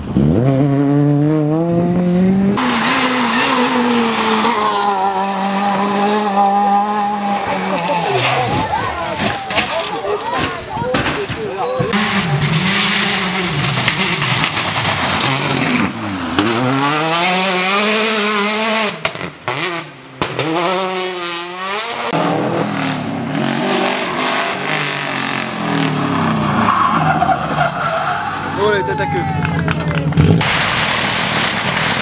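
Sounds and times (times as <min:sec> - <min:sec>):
rally car engine revving: 0:00.0 - 0:28.6
tyres on gravel: 0:02.6 - 0:16.8, 0:25.4 - 0:32.0.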